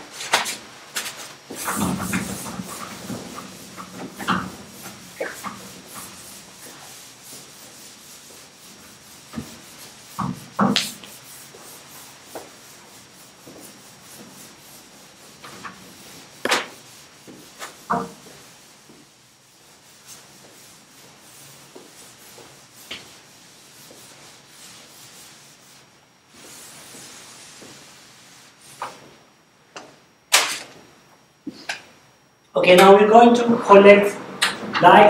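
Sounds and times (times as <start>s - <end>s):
cloth rubbing on chalkboard: 0.1s - 29.4s.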